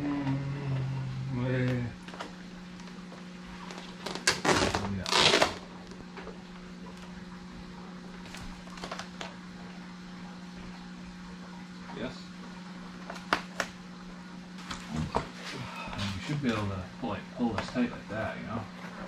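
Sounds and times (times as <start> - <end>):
steady low hum: 0.0 - 19.0
plastic film rustling and crinkling: 3.5 - 6.2, 8.2 - 9.4.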